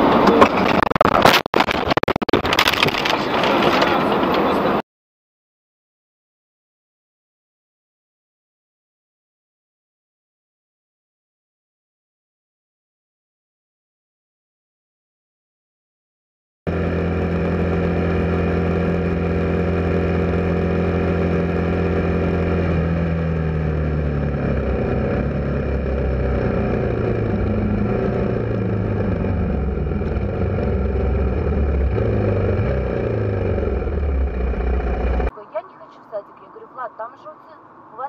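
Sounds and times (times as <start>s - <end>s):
motorcycle engine running: 16.7s - 35.3s.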